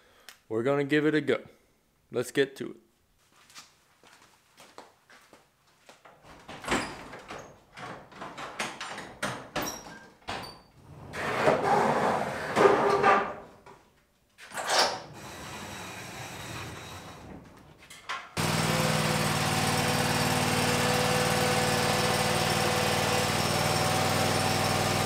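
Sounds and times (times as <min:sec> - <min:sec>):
footsteps on concrete: 0:03.2 - 0:06.1
metal sliding door rumbling: 0:10.8 - 0:13.4, 0:14.6 - 0:18.6.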